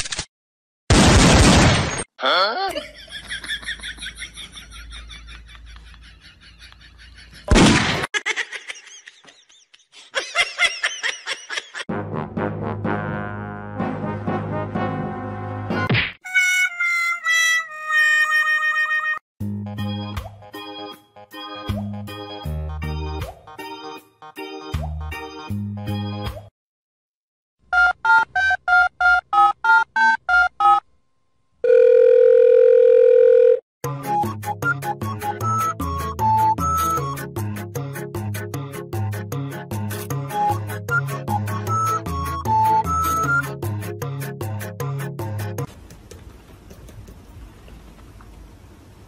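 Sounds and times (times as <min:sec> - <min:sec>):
high-pitched giggling laughter: 0:02.6 - 0:07.5, 0:08.2 - 0:11.9
music with brass: 0:11.9 - 0:15.9.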